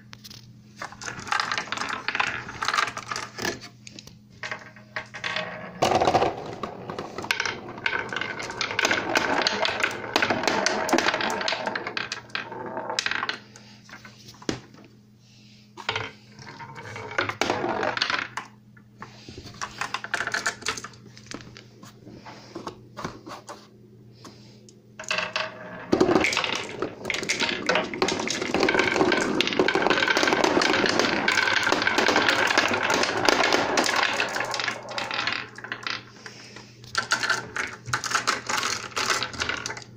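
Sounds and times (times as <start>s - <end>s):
marbles rattling down wooden run: 0.8s - 3.6s, 4.4s - 13.5s, 15.9s - 18.4s, 25.0s - 39.9s.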